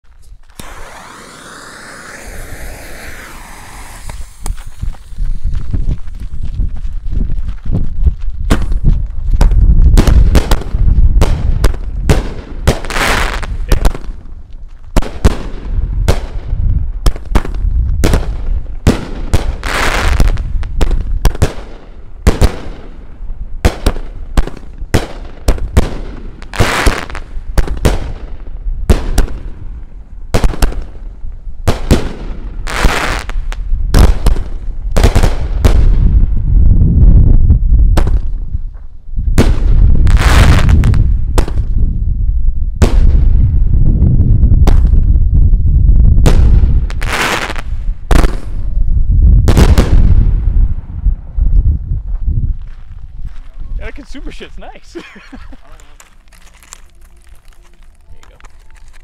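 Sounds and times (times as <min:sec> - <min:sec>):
firework hissing: 0:00.5 - 0:05.5
firework shells cracking: 0:55.3 - 0:59.0.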